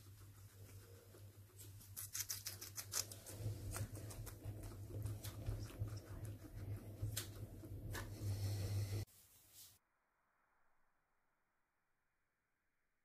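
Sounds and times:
guinea pig crunching lettuce: 0.0 - 8.4.

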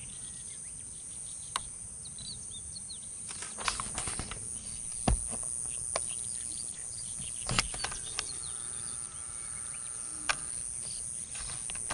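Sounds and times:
insect trill: 2.2 - 11.9
sharp clicks: 3.3 - 8.6, 10.0 - 11.9
faint bird chirps: 4.2 - 11.9.

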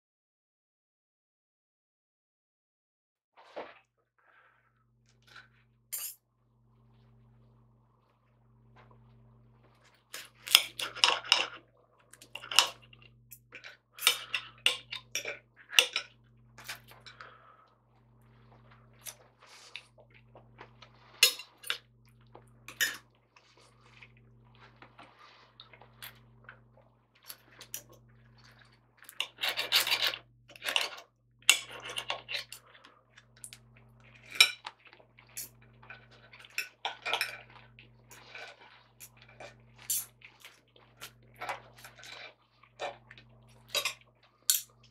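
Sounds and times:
cutlery scraping on china plate: 21.2 - 21.8, 29.2 - 32.6.

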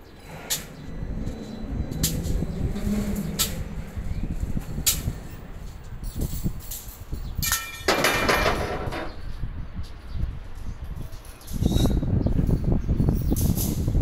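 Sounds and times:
steady low rumble: 0.0 - 10.9.

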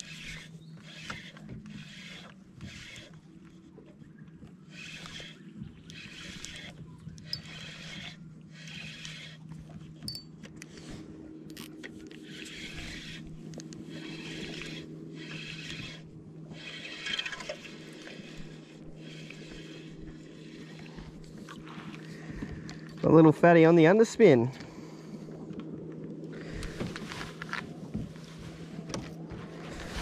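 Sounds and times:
fishing reel winding: 0.0 - 3.2, 4.7 - 9.4, 11.5 - 18.4
steady low hum: 0.0 - 30.0.

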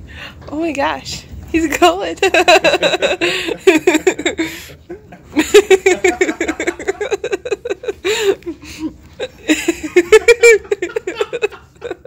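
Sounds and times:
woman laughing: 2.2 - 4.5, 5.4 - 12.0.

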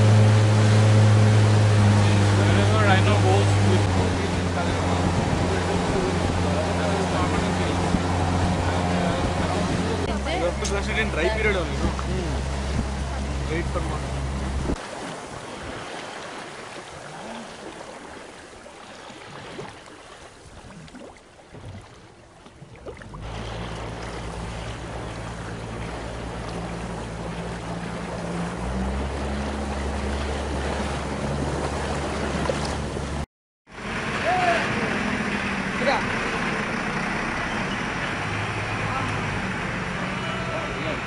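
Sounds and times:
boat engine humming: 0.0 - 41.0
water rushing past hull: 0.0 - 41.0.

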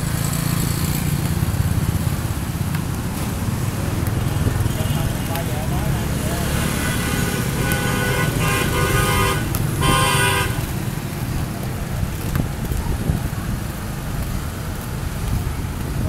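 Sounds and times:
motorbikes and scooters passing: 0.0 - 16.0
horn honking: 6.4 - 10.8.

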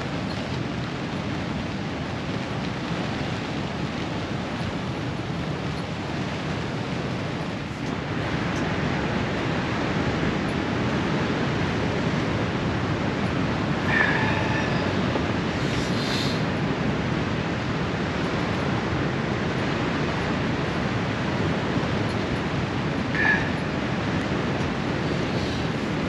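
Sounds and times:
storm wind and rain: 0.0 - 26.0
high-pitched squeak: 23.1 - 23.6.

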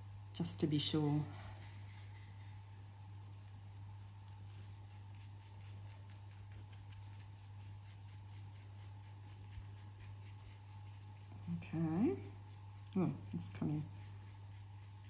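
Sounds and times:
paintbrush strokes: 4.3 - 15.0.

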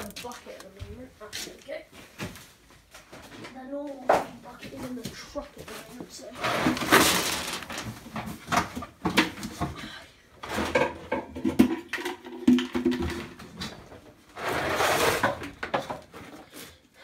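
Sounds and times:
plastic bag rustling: 0.0 - 1.8, 4.8 - 8.6
knocks and clatter of objects: 0.0 - 16.5.

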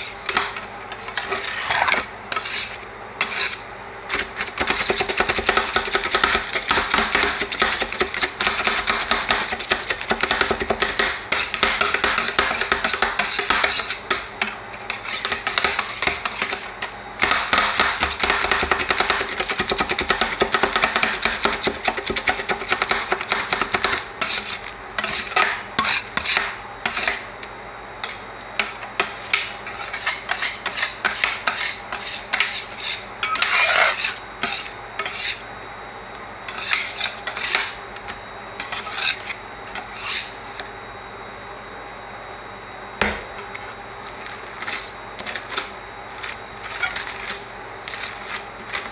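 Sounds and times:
spatulas scraping steel plate: 0.0 - 3.6, 24.2 - 27.2, 29.6 - 35.5, 36.5 - 37.8, 38.6 - 40.4, 44.6 - 48.9.

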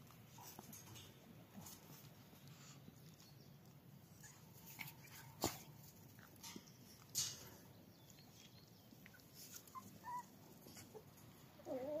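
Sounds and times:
puppy whining: 4.0 - 5.4, 9.0 - 12.0
puppies whimpering: 9.0 - 12.0.

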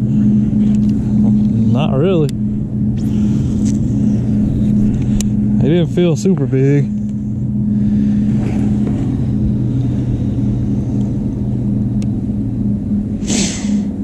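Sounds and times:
boat motor humming: 0.0 - 14.0
short hiss: 13.2 - 13.8.

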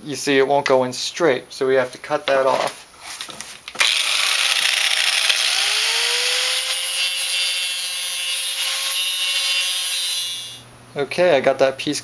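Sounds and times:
angle grinder cutting metal: 3.8 - 10.6.

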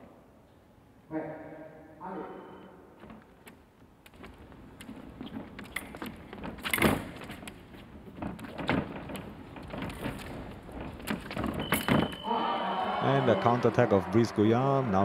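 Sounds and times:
fencing blades clicking: 4.1 - 11.9.

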